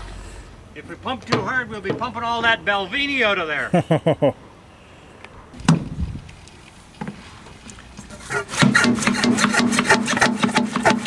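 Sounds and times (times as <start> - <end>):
hand pump plunger strokes: 8.0 - 11.0.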